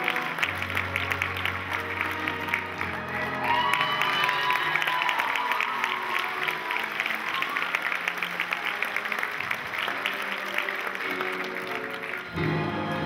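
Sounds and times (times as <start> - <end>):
audience applause: 0.0 - 13.0
instrumental music: 9.8 - 13.0.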